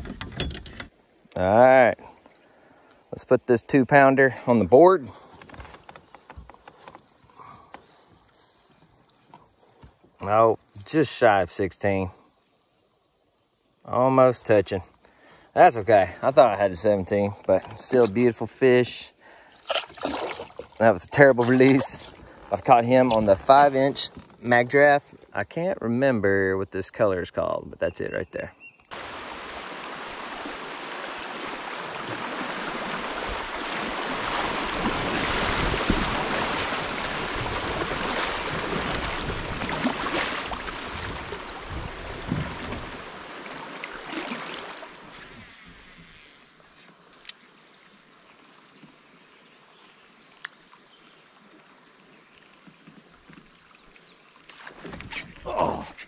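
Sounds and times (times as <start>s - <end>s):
river riffle rushing and splashing: 19.5s - 24.4s, 28.9s - 45.8s.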